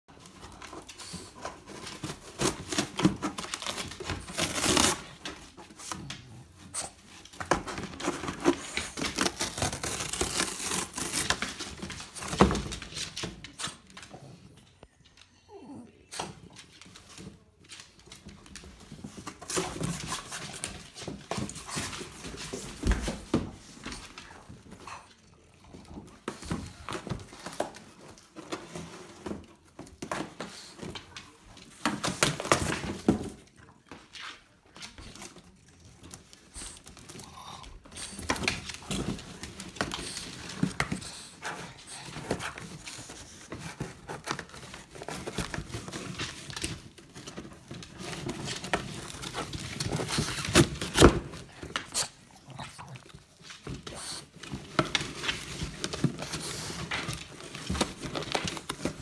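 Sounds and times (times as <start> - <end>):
dog ripping cardboard: 0.2 - 14.4, 25.7 - 59.0.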